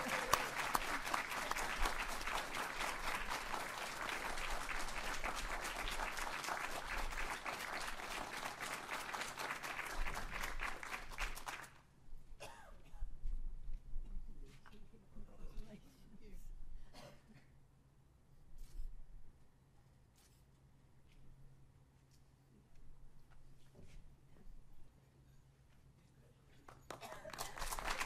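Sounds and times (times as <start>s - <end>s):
audience applauding: 0.0s - 11.8s, 26.9s - 28.0s.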